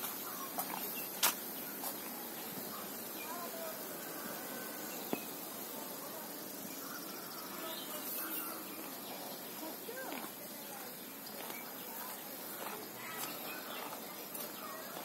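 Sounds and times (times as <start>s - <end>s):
steady hiss: 0.0s - 15.0s
faint bird chirps: 6.5s - 15.0s.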